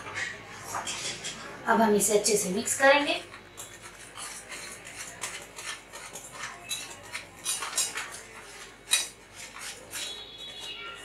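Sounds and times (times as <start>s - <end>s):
whisk scraping metal bowl: 3.0s - 11.0s.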